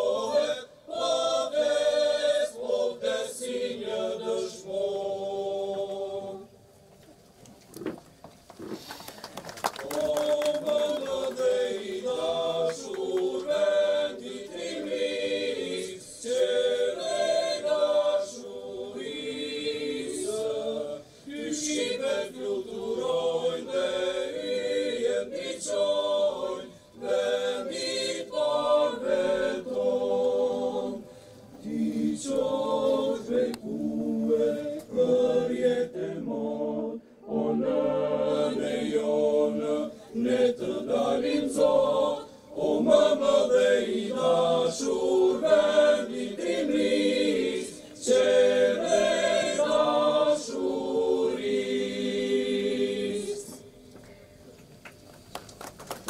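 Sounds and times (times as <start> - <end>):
mixed choir singing unaccompanied: 0.0 - 6.7, 9.8 - 53.7.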